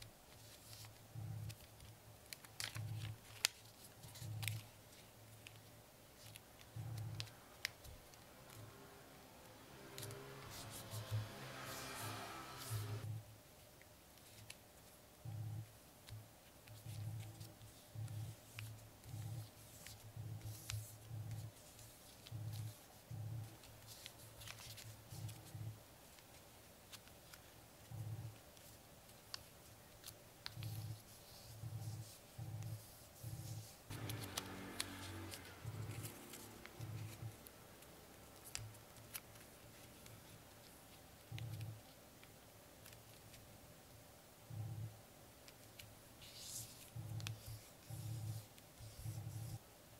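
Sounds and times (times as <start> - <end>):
paper folding clicks and crackles: 0.0 - 8.6, 16.0 - 44.0, 45.4 - 49.6
faint background music: 0.0 - 13.4.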